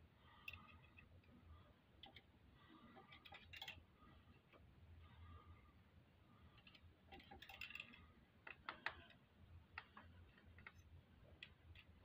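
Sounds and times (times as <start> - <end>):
light metallic clicks and taps: 6.6 - 12.0.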